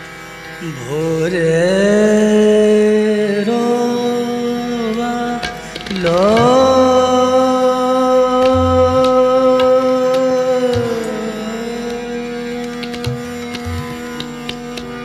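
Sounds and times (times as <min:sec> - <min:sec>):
man singing: 0:00.6 - 0:12.6
steady drone: 0:06.3 - 0:10.1.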